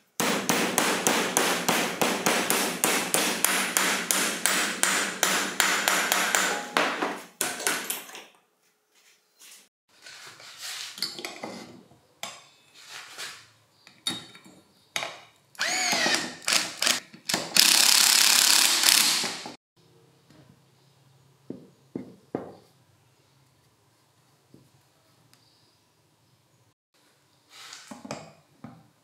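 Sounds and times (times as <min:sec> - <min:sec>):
screwdriver driving screw: 0:15.6 - 0:19.5.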